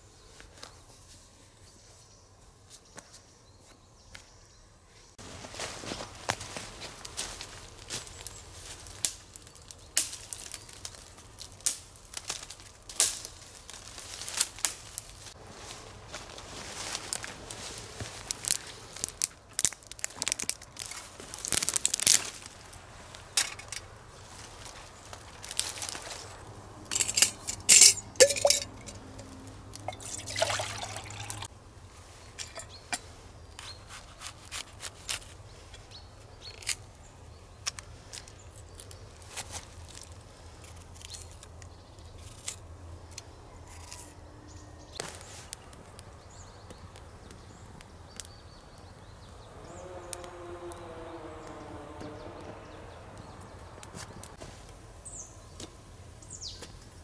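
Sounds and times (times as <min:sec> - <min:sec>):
branches rustling: 0:05.2 - 0:57.0
dry twigs snapping: 0:06.2 - 0:15.4, 0:16.1 - 0:31.5, 0:37.6 - 0:44.0, 0:45.0 - 0:48.9, 0:49.5 - 0:54.8
liquid pouring from bottle: 0:29.8 - 0:31.5.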